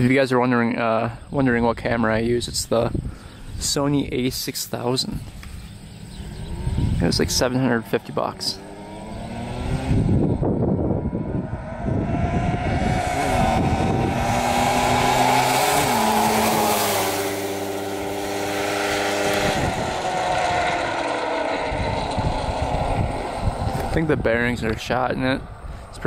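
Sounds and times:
two-stroke engine flyby: 5.4 - 26.0.

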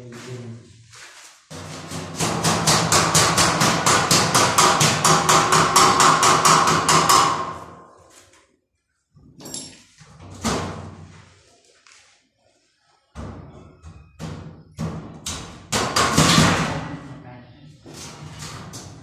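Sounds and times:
rapid hammering on steel frame: 1.5 - 7.8, 14.9 - 16.8.

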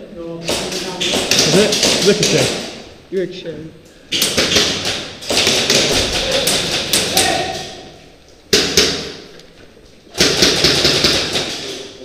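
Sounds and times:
airsoft guns firing: 0.4 - 2.8, 4.1 - 7.8, 8.5 - 9.3, 10.1 - 11.9.

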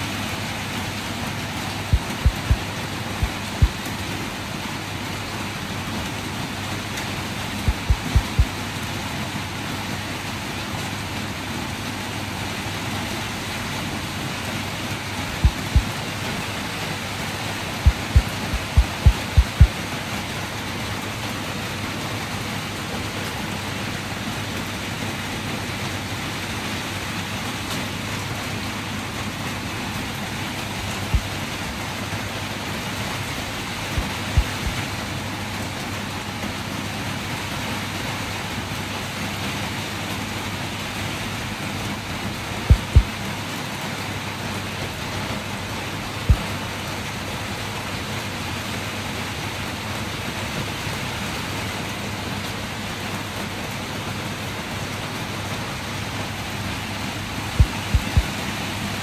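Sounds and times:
rain hissing: 0.0 - 59.0
short low thumps: 1.9 - 2.6, 7.7 - 8.5, 15.4 - 15.9, 17.9 - 19.7, 34.0 - 34.8, 42.7 - 43.1, 57.6 - 58.4.

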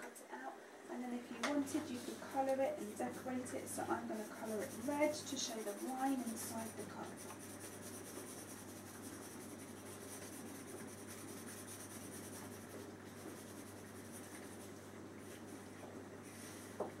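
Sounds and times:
pen scribbling on cardboard: 3.0 - 14.7.

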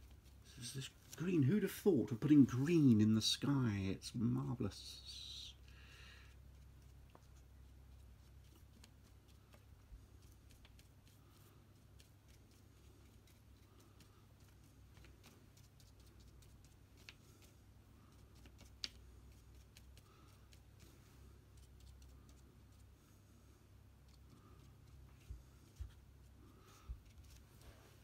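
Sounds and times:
paintbrush dabbing on paper: 0.0 - 3.1, 6.3 - 23.1
low room hum: 0.0 - 28.0.

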